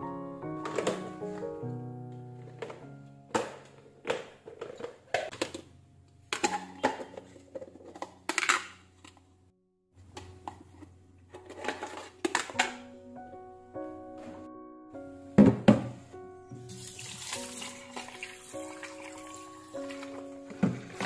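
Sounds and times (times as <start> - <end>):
soft background music: 0.0 - 9.3, 10.0 - 21.0
plastic containers clicking and knocking: 0.6 - 1.4, 2.5 - 9.2, 11.3 - 12.8.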